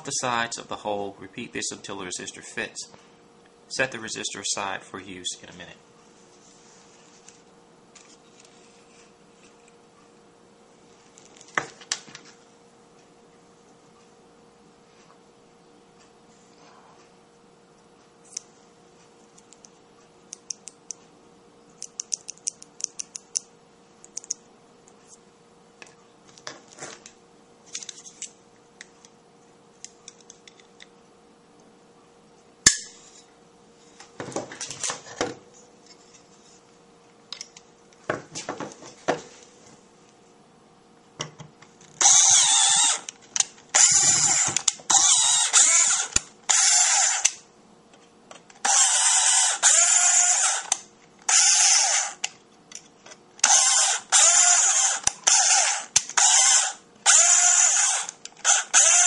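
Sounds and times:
tools ticking and clicking: 0:21.8 - 0:23.5.

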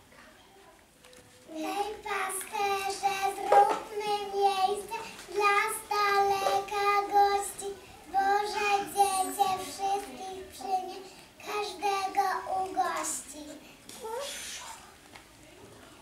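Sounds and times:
children singing in unison: 0:01.6 - 0:13.4.

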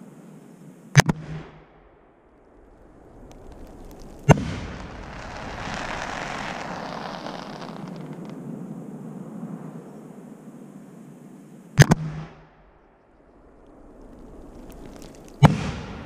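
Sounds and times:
firework crackling: 0:02.4 - 0:08.4, 0:13.8 - 0:16.0.

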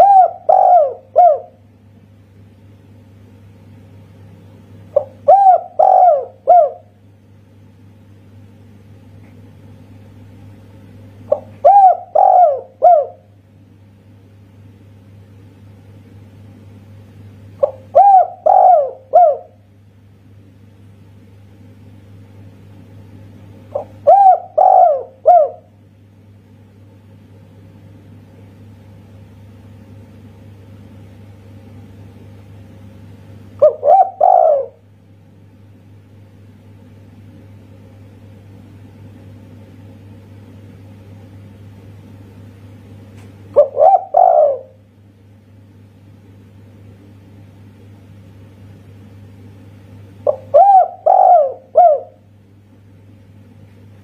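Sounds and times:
dove cooing: 0:00.0 - 0:01.6, 0:04.9 - 0:07.0, 0:11.3 - 0:13.3, 0:17.6 - 0:19.6, 0:23.7 - 0:25.7, 0:33.6 - 0:34.8, 0:43.6 - 0:44.8, 0:50.2 - 0:52.3
steady low hum: 0:00.0 - 0:54.0.

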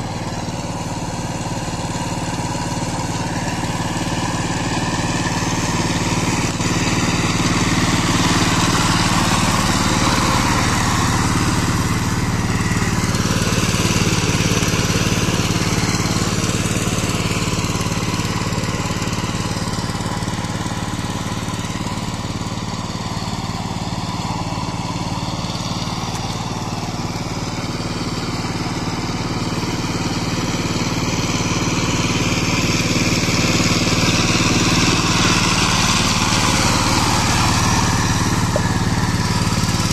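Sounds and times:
rotavator churning mud: 0:00.0 - 0:29.5, 0:30.2 - 0:39.9
diesel tiller engine running: 0:00.0 - 0:39.9.

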